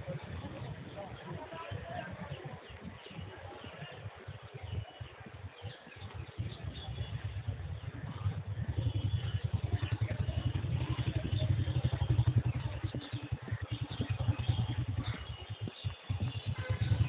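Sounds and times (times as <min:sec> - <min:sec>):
wind buffeting microphone: 0:00.0 - 0:17.0.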